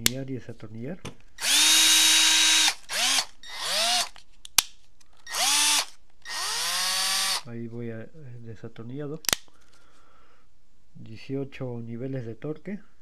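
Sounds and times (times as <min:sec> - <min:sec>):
cordless drill motor whine: 0:01.4 - 0:04.1, 0:05.2 - 0:07.4.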